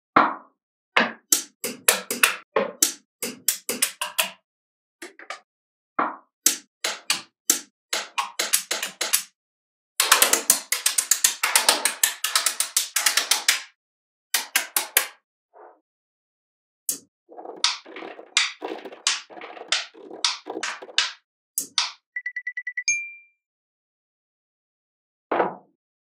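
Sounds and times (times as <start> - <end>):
magnetic balls clicking together: 1.3 - 4.4, 6.5 - 9.3, 10.0 - 13.6, 17.6 - 22.0.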